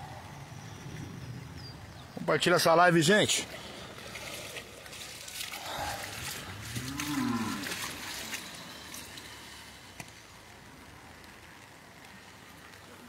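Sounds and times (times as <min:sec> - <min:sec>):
rushing floodwater: 0:01.4 - 0:13.0
cow mooing: 0:06.7 - 0:07.8.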